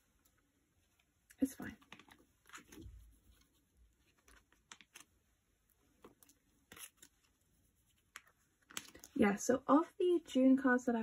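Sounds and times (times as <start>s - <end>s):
rustles of cards in plastic sleeves: 0.9s - 9.4s.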